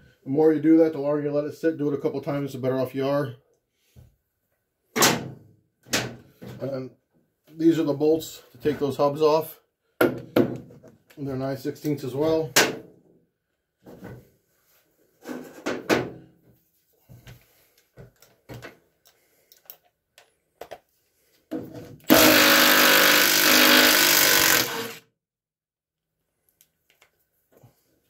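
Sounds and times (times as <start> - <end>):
cordless impact wrench running: 22.1 - 25.0.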